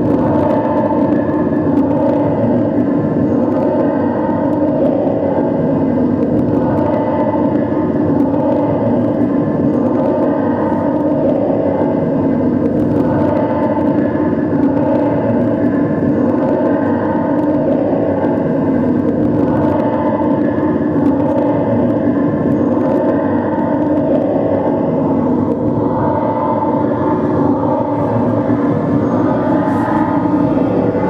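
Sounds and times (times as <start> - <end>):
loud electronic drone: 0.0 - 31.0.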